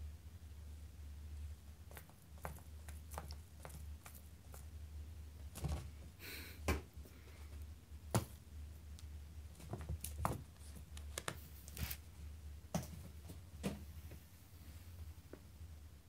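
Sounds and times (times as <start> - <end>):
kitten pouncing taps and thumps: 8.1 - 8.4.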